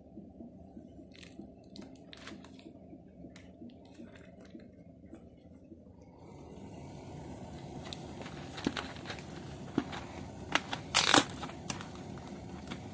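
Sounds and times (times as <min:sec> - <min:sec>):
low background hum: 0:00.0 - 0:12.9
sharp clicks and crinkles: 0:07.8 - 0:12.9.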